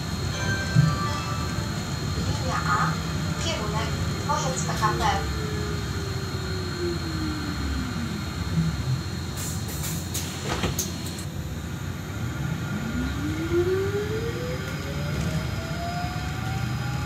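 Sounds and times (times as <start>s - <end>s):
low ride rumble: 0.0s - 10.4s.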